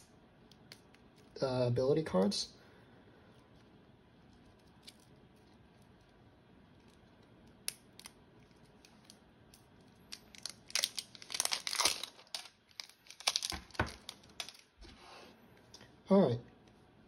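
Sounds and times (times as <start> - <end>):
plastic wrap crackling: 3.4 - 14.9.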